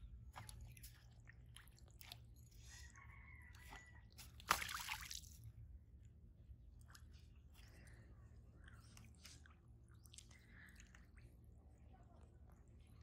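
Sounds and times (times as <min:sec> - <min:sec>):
fishing float splashing out of water: 0:04.4 - 0:05.4.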